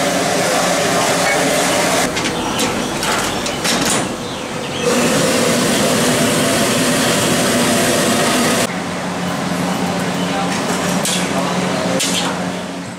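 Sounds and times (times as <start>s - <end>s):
steam rushing with low hum: 0.0s - 2.1s, 4.8s - 9.6s.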